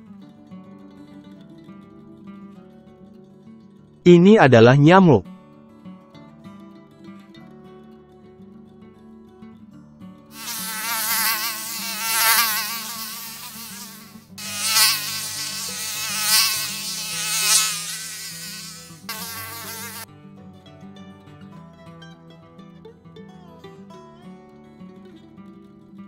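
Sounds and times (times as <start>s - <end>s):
mosquito whining in flight: 10.4s - 20.1s.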